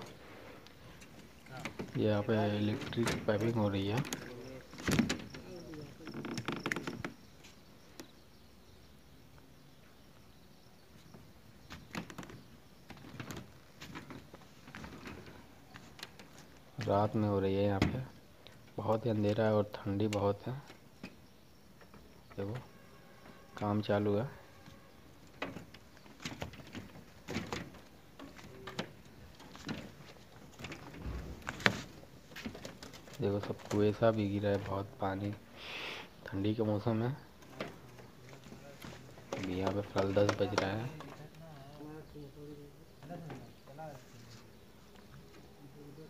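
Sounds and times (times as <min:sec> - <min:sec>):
faint scraping and knocking: 0:21.0 - 0:34.8, 0:37.3 - 0:41.4
low thump: 0:30.9 - 0:31.8.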